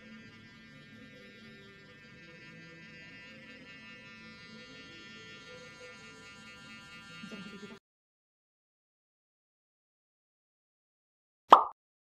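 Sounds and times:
soft background music: 0:00.0 - 0:07.5
facial cleansing brush buzzing: 0:00.0 - 0:07.8.

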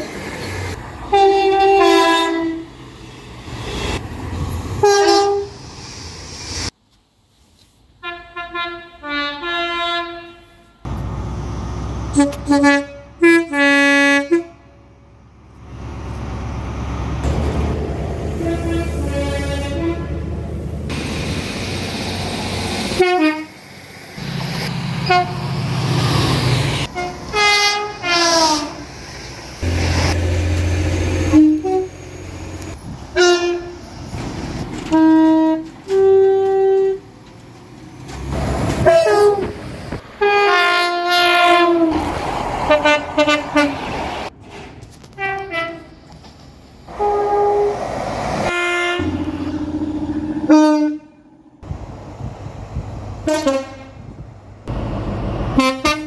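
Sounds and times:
train rumble: 0:00.0 - 0:56.0
two-tone train horn blasts: 0:01.1 - 0:02.7, 0:04.8 - 0:05.6, 0:08.0 - 0:10.9, 0:12.1 - 0:14.9, 0:18.3 - 0:20.3, 0:23.0 - 0:23.6, 0:25.0 - 0:25.5, 0:26.9 - 0:28.8, 0:31.2 - 0:32.0, 0:33.2 - 0:33.8, 0:34.9 - 0:37.1, 0:38.8 - 0:39.6, 0:40.2 - 0:42.0, 0:42.7 - 0:43.8, 0:45.2 - 0:46.0, 0:46.9 - 0:47.8, 0:48.5 - 0:51.3, 0:53.2 - 0:54.1, 0:55.6 - 0:56.0.

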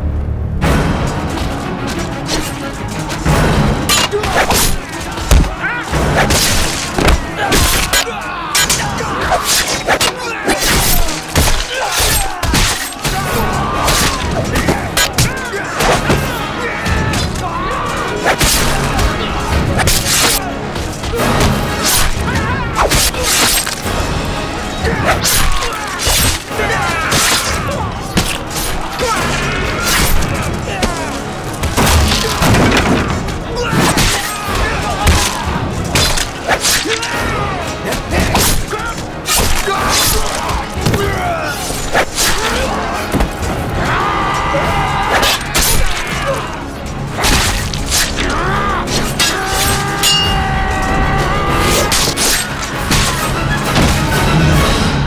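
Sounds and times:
dramatic music: 0:00.0 - 0:55.0
men shouting and grunting: 0:03.8 - 0:54.2
men yelling: 0:04.0 - 0:23.2, 0:24.6 - 0:35.8, 0:36.4 - 0:47.3, 0:48.0 - 0:52.0
thuds and blows: 0:04.3 - 0:07.9.

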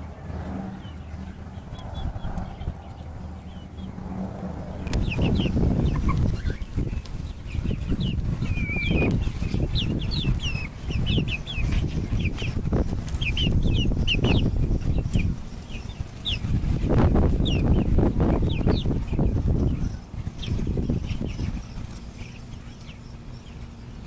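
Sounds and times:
steady low rumble: 0:00.0 - 0:24.0
young hens peeping: 0:00.0 - 0:24.0.

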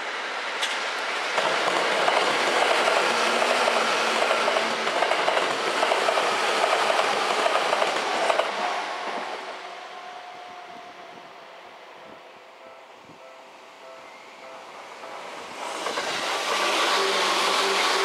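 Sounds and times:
electric train running past: 0:00.0 - 0:18.0
train wheels clacking over rail joints: 0:01.4 - 0:09.2
faint steady high tone: 0:12.0 - 0:15.4.

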